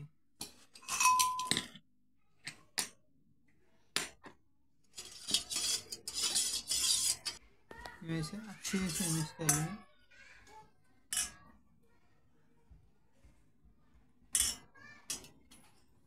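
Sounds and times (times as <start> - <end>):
spoon clinking against metal bowl: 0.8 - 1.7, 8.7 - 9.8.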